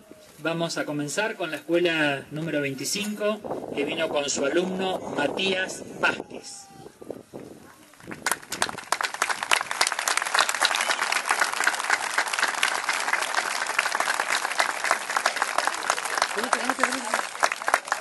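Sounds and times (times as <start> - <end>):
crowd applauding: 8.0 - 18.0.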